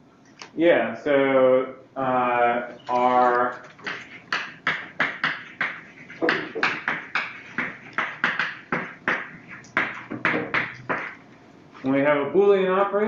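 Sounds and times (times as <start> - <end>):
chalk writing on blackboard: 3.8 - 11.2.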